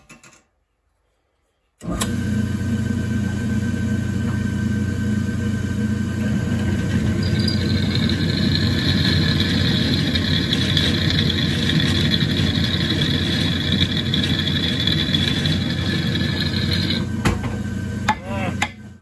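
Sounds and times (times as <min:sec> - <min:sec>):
drill press motor hum: 0:01.8 - 0:19.0
drill bit squealing on metal: 0:07.1 - 0:17.0.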